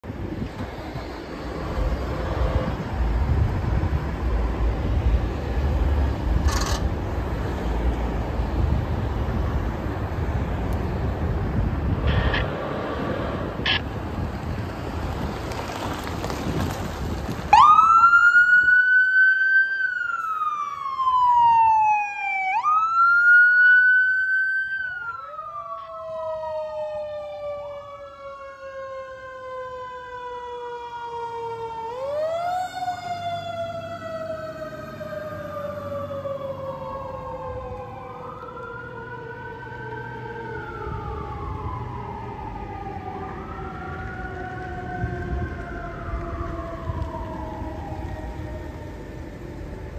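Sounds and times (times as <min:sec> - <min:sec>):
car passing: 0:00.3 - 0:18.2
lower second siren: 0:00.9 - 0:05.8, 0:07.6 - 0:13.9, 0:17.5 - 0:49.9
ambulance siren wailing: 0:11.8 - 0:13.9, 0:17.5 - 0:49.9.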